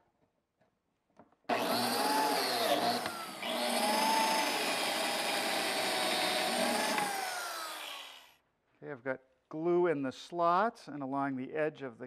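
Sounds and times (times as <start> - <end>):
biscuit joiner motor whine: 1.5 - 8.3.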